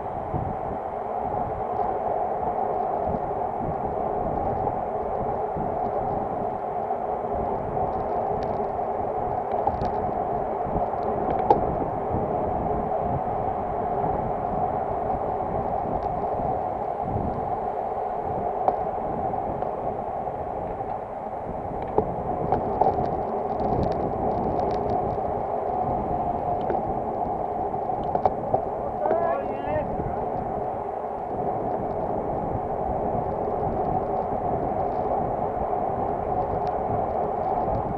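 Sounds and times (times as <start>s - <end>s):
bicycle tyre noise: 0.0s - 37.9s
rushing wind: 0.0s - 37.9s
road noise: 20.2s - 31.3s.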